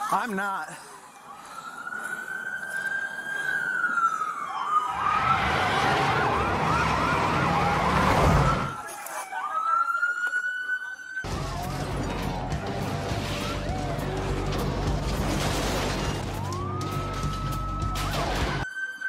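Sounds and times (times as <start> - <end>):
police siren wailing and yelping: 0.7 - 14.6, 16.1 - 19.0
racing car engines rumbling: 5.2 - 8.8.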